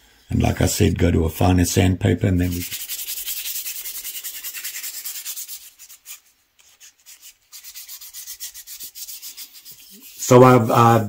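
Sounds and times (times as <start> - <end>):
sandpaper scratching on wood: 2.4 - 11.0.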